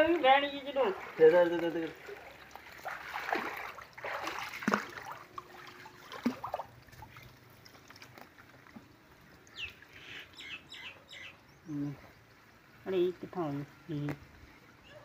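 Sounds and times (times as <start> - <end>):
water lapping: 0.0 - 10.4
water splashing and sloshing: 0.0 - 10.4.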